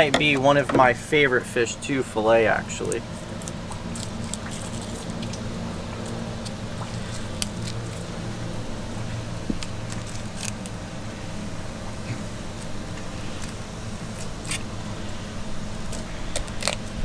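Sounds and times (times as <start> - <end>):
steady low hum: 0.0 - 17.0
knife cutting through fish scales: 12.6 - 14.7, 15.7 - 17.0.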